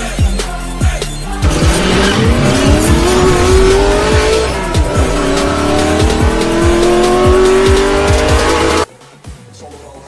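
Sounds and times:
electronic music with kick drum: 0.0 - 8.9
car engine revving: 1.2 - 8.9.

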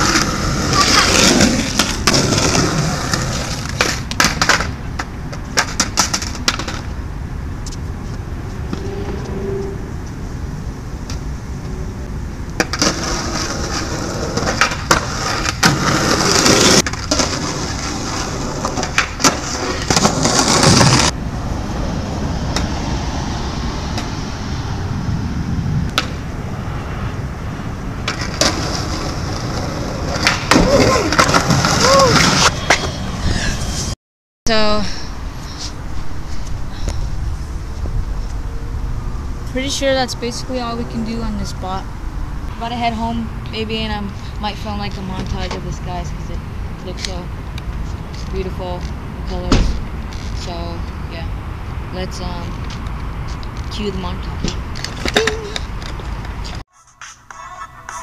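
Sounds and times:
skateboard deck slapping down: 0.0 - 6.9
skateboard tail popping: 0.0 - 6.9, 12.5 - 21.1
skateboard wheels rolling on concrete: 0.0 - 33.9, 35.2 - 56.6.

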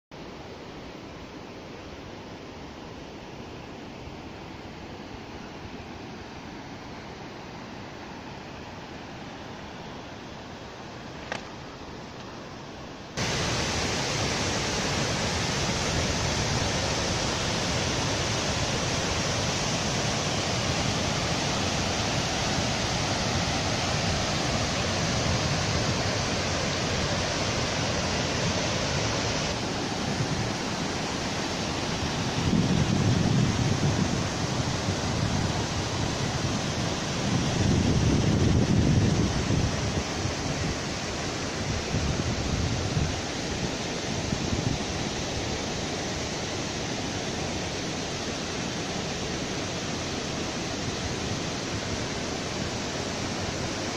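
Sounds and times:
meltwater rushing over rock: 13.2 - 41.4
wind buffeting microphone: 31.8 - 41.0.

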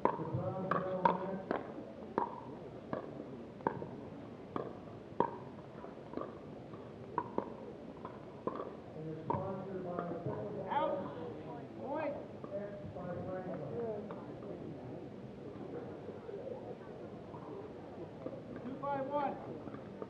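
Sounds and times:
paddles hitting plastic ball: 6.1 - 8.7.

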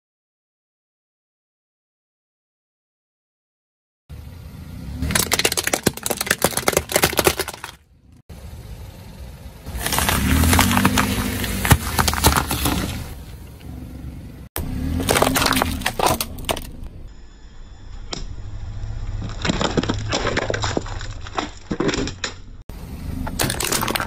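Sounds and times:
car engine hum: 4.1 - 21.3, 22.0 - 24.0
tyre crunching apples: 4.9 - 7.8, 9.7 - 13.7, 14.6 - 16.9, 19.0 - 24.0.

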